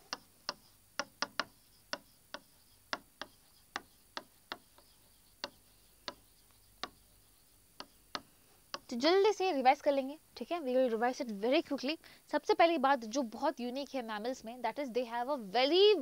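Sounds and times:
pen tapping on writing board: 0:00.0 - 0:07.1, 0:07.8 - 0:08.9.

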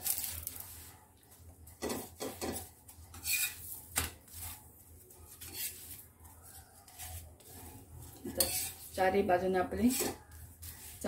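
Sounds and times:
metal spatula scraping griddle: 0:01.8 - 0:11.0.

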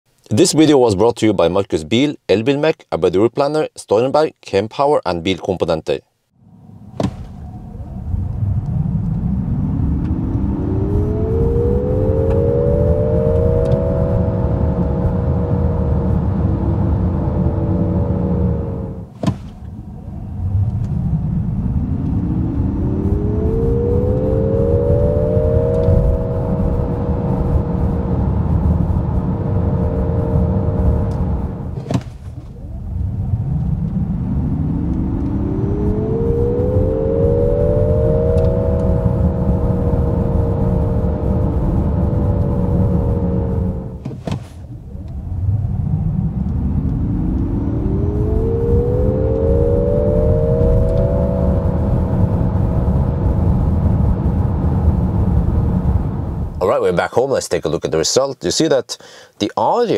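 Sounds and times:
road and tyre rumble: 0:06.5 - 0:56.6
electric motor whine: 0:08.3 - 0:19.1, 0:21.7 - 0:31.9, 0:33.5 - 0:44.0, 0:46.4 - 0:54.2.

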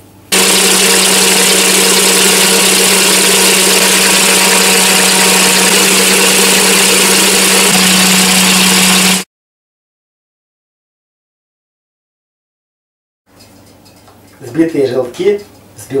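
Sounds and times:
electric mixer motor hum: 0:00.3 - 0:09.3.

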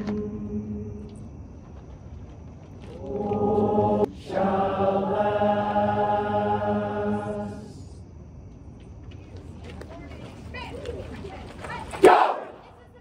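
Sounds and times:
choir singing held chord: 0:00.0 - 0:01.2, 0:03.0 - 0:08.0.

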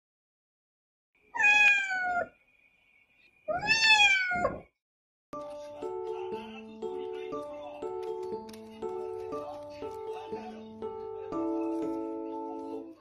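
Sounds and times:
cat meowing: 0:01.3 - 0:02.4, 0:03.5 - 0:04.7.

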